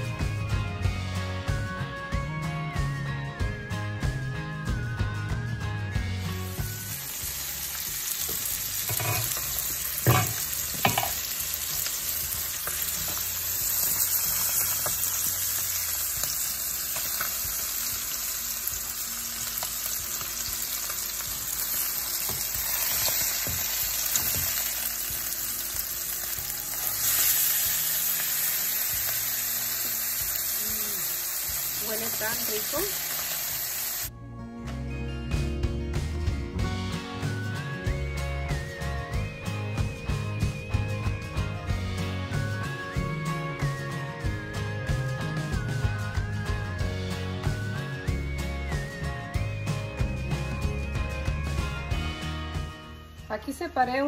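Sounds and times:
fish fillets sizzling in oil: 6.4 - 34.1
spatula and tongs knocking pan: 8.3 - 11.4.

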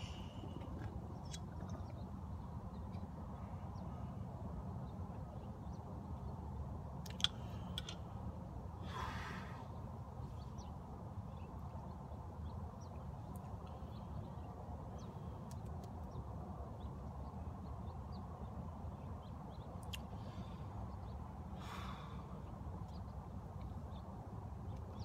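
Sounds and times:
low outdoor rumble: 0.0 - 25.0
small birds chirping: 0.0 - 25.0
breathy exhale: 8.8 - 9.7, 21.6 - 22.4.

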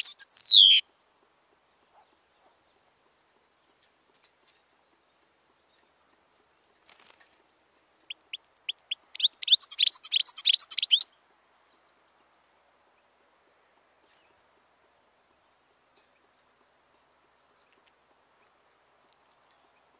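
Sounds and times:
goldfinch singing: 0.0 - 0.9, 7.0 - 11.1.

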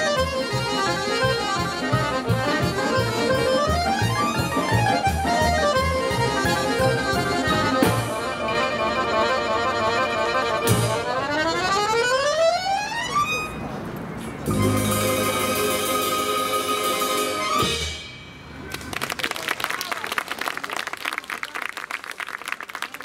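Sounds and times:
regular bass beat: 0.0 - 8.2
folk instrument orchestra playing: 0.0 - 13.8, 14.4 - 18.2.

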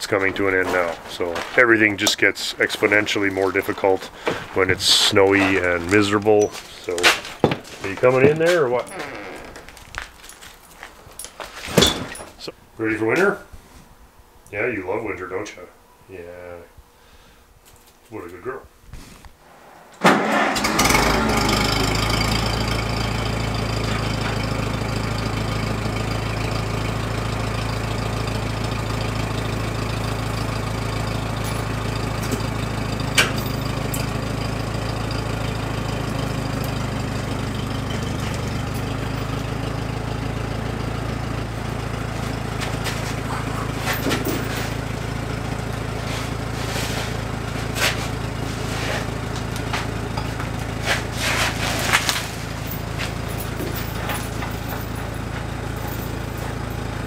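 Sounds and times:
tractor engine idling: 0.0 - 11.5, 20.0 - 57.0.

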